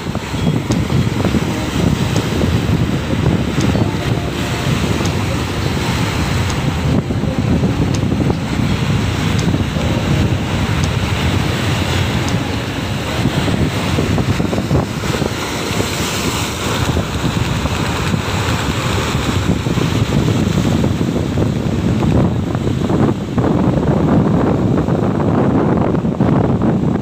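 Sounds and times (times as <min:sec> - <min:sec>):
strong wind buffeting microphone: 0:00.0 - 0:27.0
waves breaking against rocks: 0:13.8 - 0:22.9.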